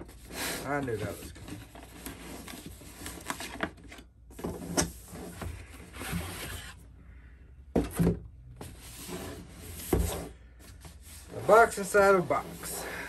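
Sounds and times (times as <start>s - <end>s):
cardboard box sliding from sleeve: 5.0s - 6.8s, 8.6s - 13.0s.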